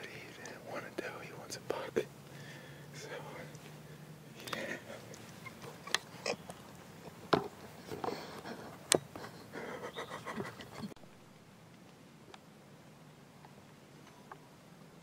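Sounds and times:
man breathing: 2.3 - 5.2, 7.8 - 9.9.

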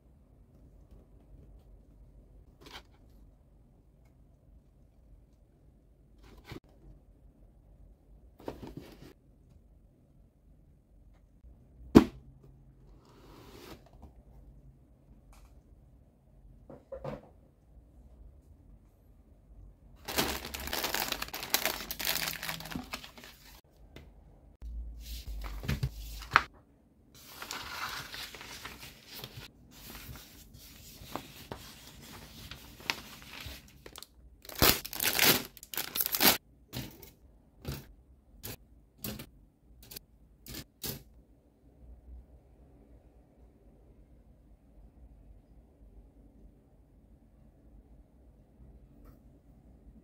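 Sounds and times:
cellophane bags crinkling and tearing: 20.0 - 23.6, 32.8 - 36.4.

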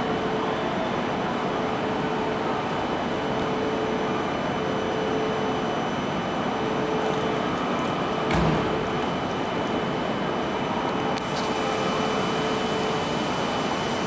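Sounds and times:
idling train hum and hiss: 0.0 - 14.0
faint whining tones: 11.2 - 14.0.

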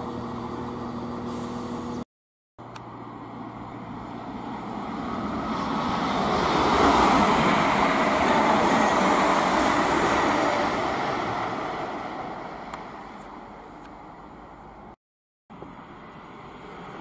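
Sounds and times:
train wheels rushing on rail: 3.4 - 13.3.

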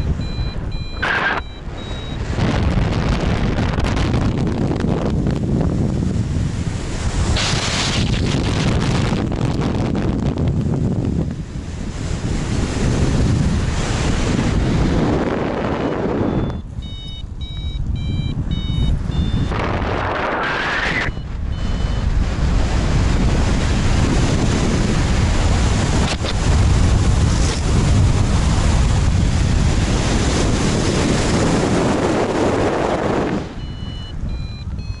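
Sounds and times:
variometer short rapid beeps: 0.0 - 2.3, 15.7 - 22.1, 33.5 - 35.0
wind buffeting microphone: 0.0 - 35.0.

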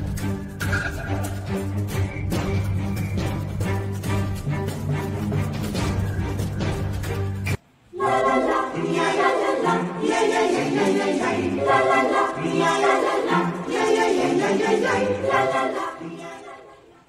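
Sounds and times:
choir singing sustained chords: 7.8 - 17.0.

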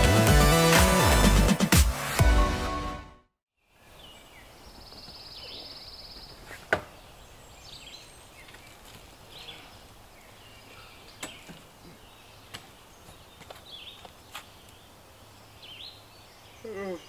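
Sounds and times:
bird chirps: 3.7 - 17.0.

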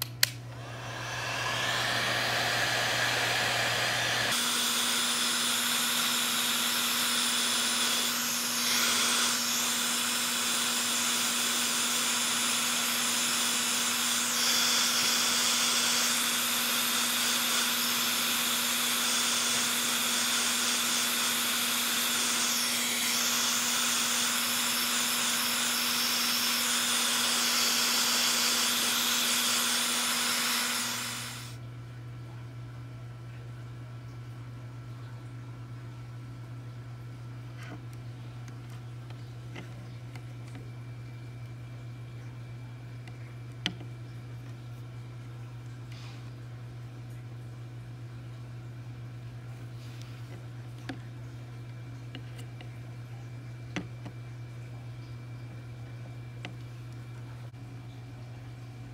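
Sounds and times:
heat gun blowing: 0.6 - 31.6.

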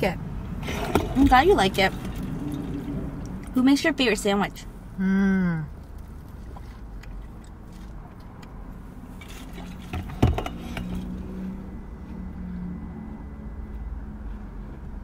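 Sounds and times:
quiet eating noises: 5.6 - 8.9.

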